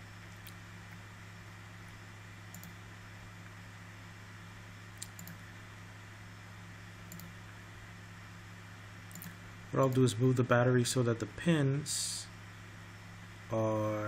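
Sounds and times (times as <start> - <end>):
steady low hum: 0.0 - 14.0
faint computer mouse clicks: 2.5 - 2.8, 5.0 - 5.4, 7.1 - 7.4, 9.1 - 10.0.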